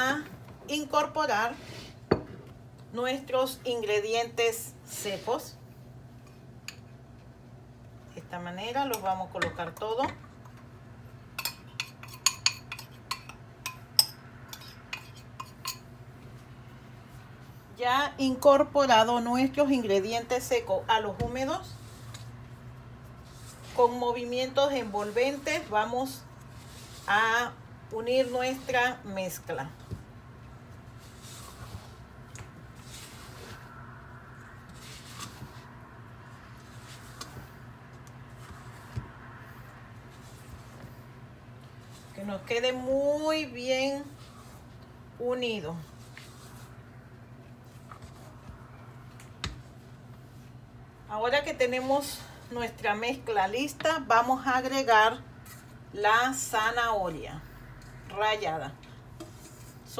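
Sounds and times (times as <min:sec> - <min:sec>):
low steady hum: 0:00.0 - 0:59.9
spatula folding batter in a bowl: 0:11.4 - 0:16.5, 0:18.4 - 0:40.9, 0:41.5 - 0:50.6, 0:58.9 - 0:59.9.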